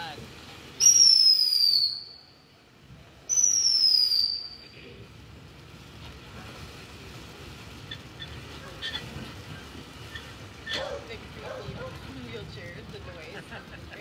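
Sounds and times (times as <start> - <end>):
firework fountain hissing: 0.0 - 14.0
firework whistle: 0.8 - 2.3, 3.3 - 4.7
faint crackles: 4.6 - 14.0.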